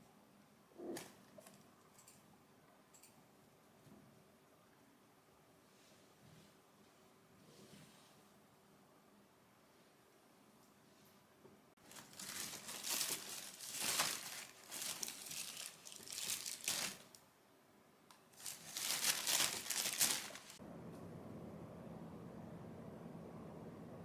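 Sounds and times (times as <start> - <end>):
plastic bag crinkling: 11.8 - 17.2, 18.4 - 20.6.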